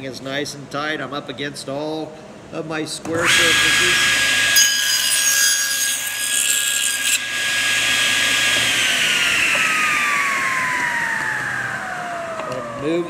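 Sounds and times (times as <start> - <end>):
table saw whine: 3.1 - 13.0
saw blade cutting wood: 3.2 - 10.1.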